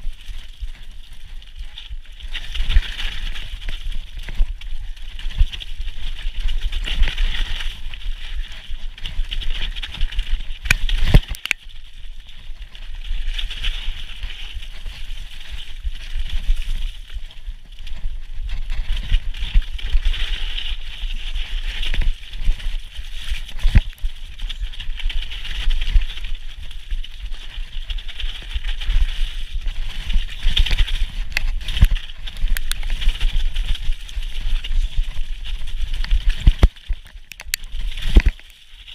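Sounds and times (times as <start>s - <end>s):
bike tyres rumbling on dirt: 0.0s - 38.9s
wind on microphone: 12.3s - 38.9s.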